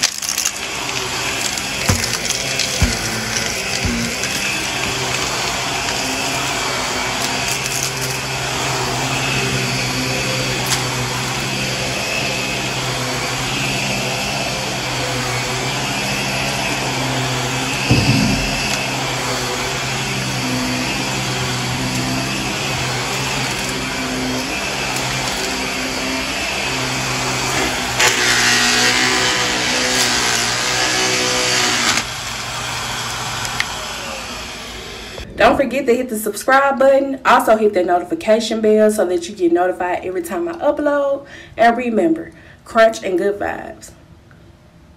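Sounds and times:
vacuum cleaner running over carpet: 0:00.0 - 0:35.6
thump: 0:17.9 - 0:18.8.

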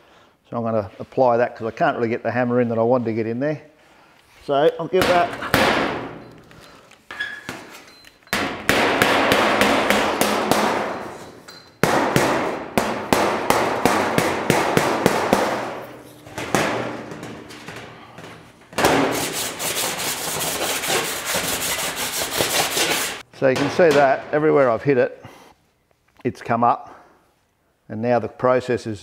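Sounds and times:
rapid hammer blows on steel: 0:11.8 - 0:23.2.

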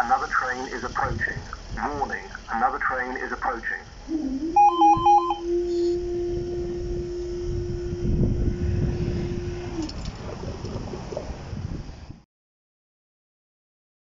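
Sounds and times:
wind rumbling on microphone: 0:00.0 - 0:12.2
barrier mechanism humming: 0:01.6 - 0:11.3.

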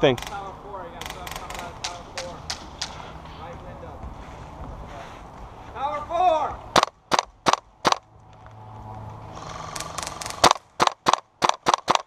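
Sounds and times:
airsoft rifle shots: 0:06.7 - 0:08.0, 0:09.7 - 0:12.0.

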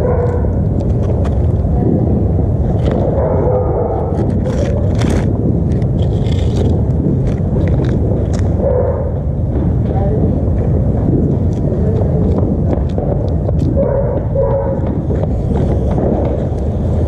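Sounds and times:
distant fireworks rumble: 0:00.0 - 0:17.0
firecracker pops: 0:11.1 - 0:16.9.

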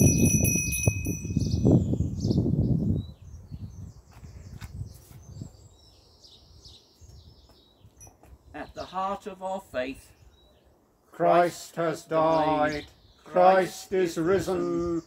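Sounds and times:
bell ringing: 0:00.0 - 0:01.6
wind rumble on microphone: 0:00.0 - 0:08.6
birds chirping and singing: 0:00.0 - 0:15.0.

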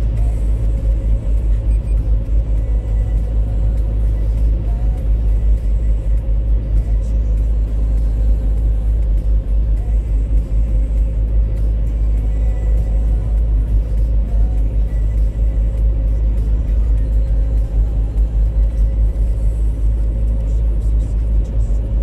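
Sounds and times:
car road rumble from inside: 0:00.0 - 0:22.0.

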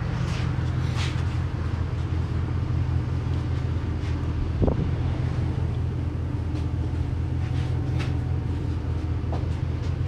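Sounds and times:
low mechanical drone: 0:00.0 - 0:10.0.

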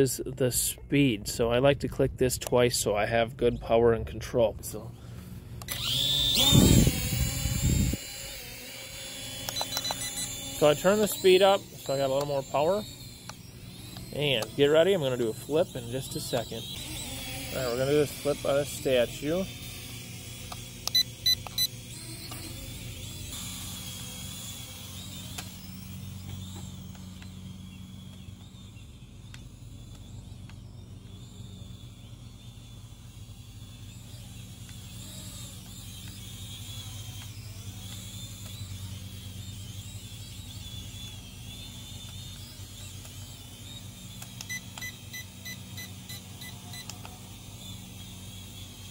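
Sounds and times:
drone propellers buzzing: 0:04.8 - 0:48.9
short beeps: 0:44.4 - 0:46.9.

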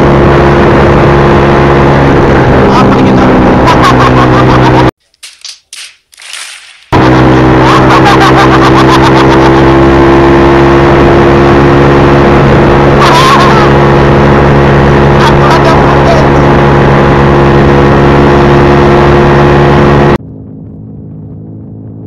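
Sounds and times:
motorcycle engine running: 0:06.9 - 0:22.0.

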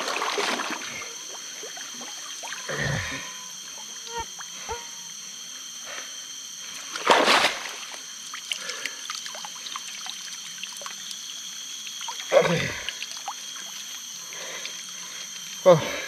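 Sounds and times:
water splashing and trickling: 0:00.0 - 0:02.6, 0:07.0 - 0:14.0
loud splashes: 0:07.0 - 0:08.0.

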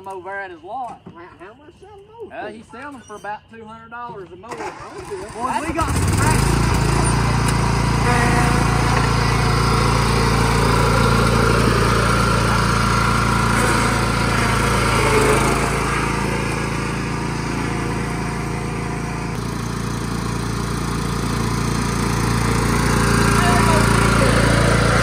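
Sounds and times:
riding mower engine running: 0:04.5 - 0:25.0.

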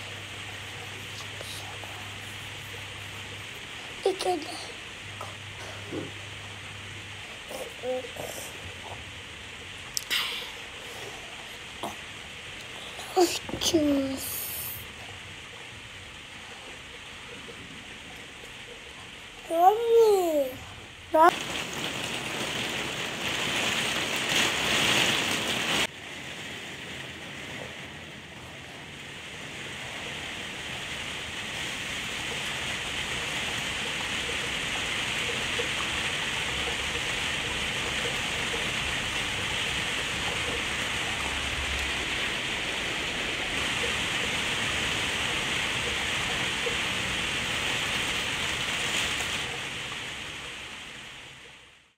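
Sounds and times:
steady rain: 0:00.0 - 0:51.9.

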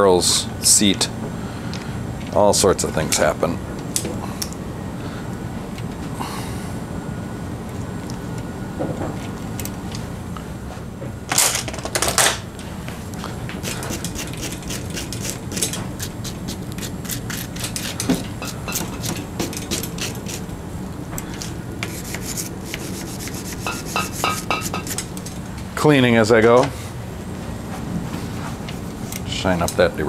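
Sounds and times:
rag wiping bicycle parts: 0:21.4 - 0:25.1.

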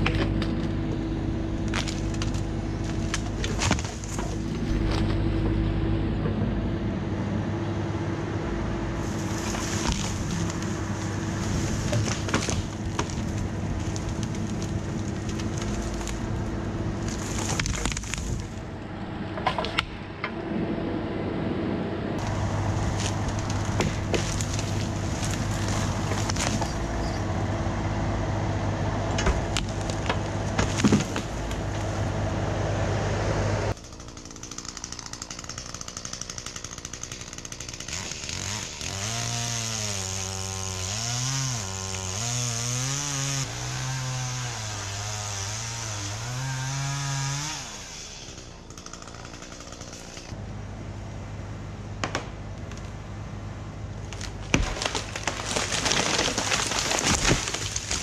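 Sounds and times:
sharp wood cracks: 0:01.6 - 0:05.3, 0:09.1 - 0:18.7, 0:22.2 - 0:27.2, 0:29.1 - 0:31.9, 0:33.7 - 0:46.1, 0:48.3 - 0:50.4, 0:52.0 - 0:53.0, 0:54.0 - 0:58.0
chainsaw cutting wood: 0:09.0 - 0:18.6, 0:22.2 - 0:27.2, 0:33.7 - 0:50.4, 0:54.2 - 0:58.0.

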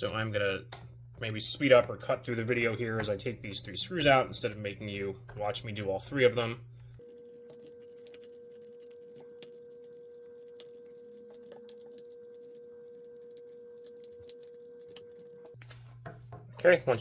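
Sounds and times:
faint steady tone: 0:06.8 - 0:15.6.

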